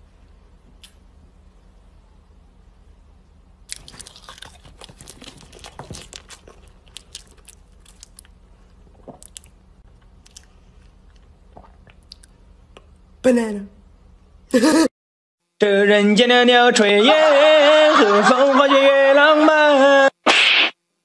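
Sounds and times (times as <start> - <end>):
chewing banana: 3.7 - 12.3.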